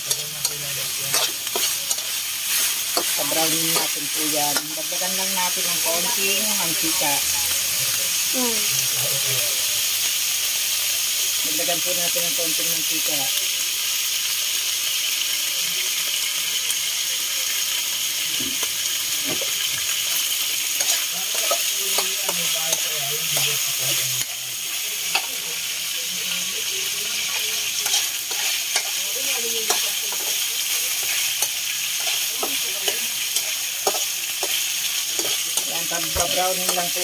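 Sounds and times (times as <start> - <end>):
metal spoon scraping a wok: 0.0 - 5.6, 19.4 - 24.4, 27.2 - 37.0
meat sizzling in hot oil: 0.0 - 37.0.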